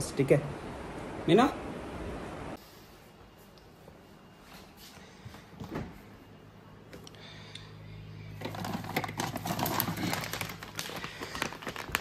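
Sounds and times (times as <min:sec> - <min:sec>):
plastic packet crinkling: 0:08.4 - 0:12.0.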